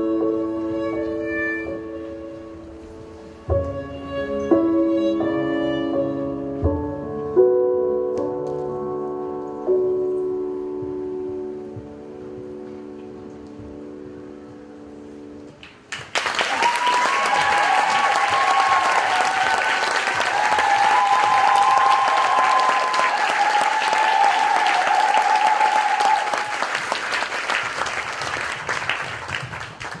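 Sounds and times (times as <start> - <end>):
audience applauding: 15.6 - 30.0
whoops and cheers: 16.4 - 26.8.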